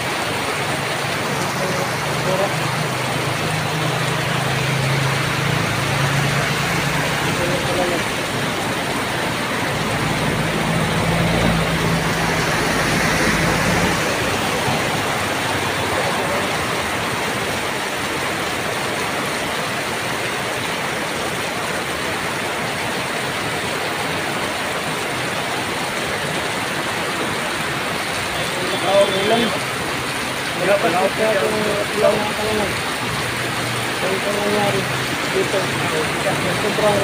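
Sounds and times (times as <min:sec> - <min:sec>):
heavy rain pouring: 0:00.0 - 0:37.0
vehicle engine droning: 0:00.4 - 0:17.4.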